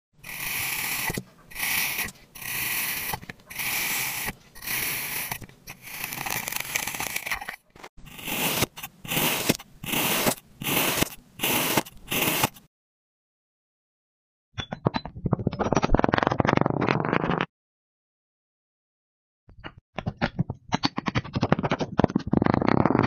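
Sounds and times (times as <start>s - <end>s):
blade scraping kinetic sand: 0.2s - 12.7s.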